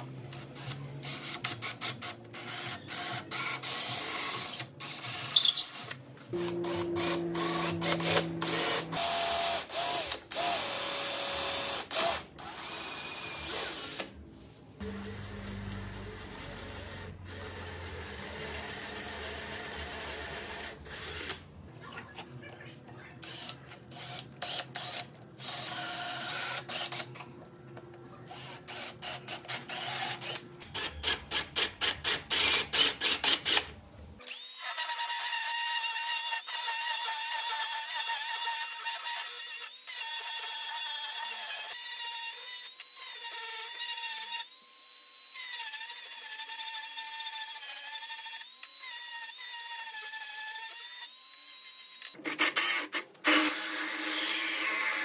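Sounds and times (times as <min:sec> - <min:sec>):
cordless drill boring into wood: 0:01.8 - 0:14.1, 0:34.3 - 0:55.0.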